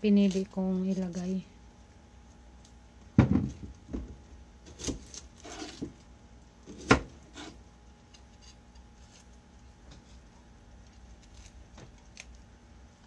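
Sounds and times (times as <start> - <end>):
onion skin rustling: 0.0 - 2.8, 7.2 - 13.0.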